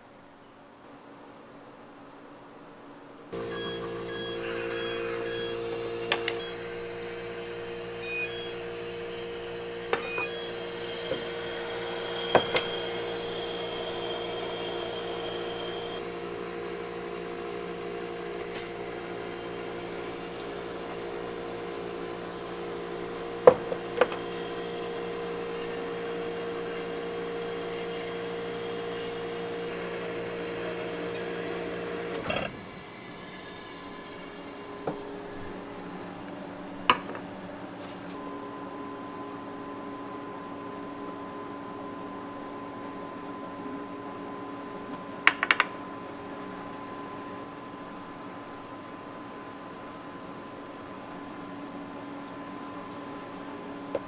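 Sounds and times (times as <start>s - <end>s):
ice machine humming: 3.4s - 38.3s.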